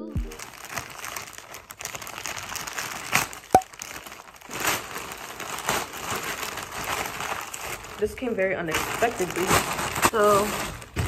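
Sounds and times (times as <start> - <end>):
plastic bag crinkling: 0.4 - 11.0.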